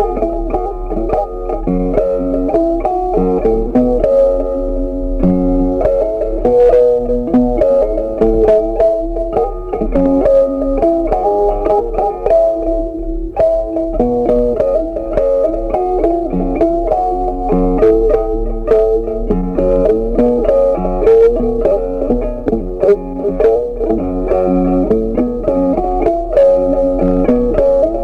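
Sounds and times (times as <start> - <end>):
plucked guitar melody: 0.0 - 28.0.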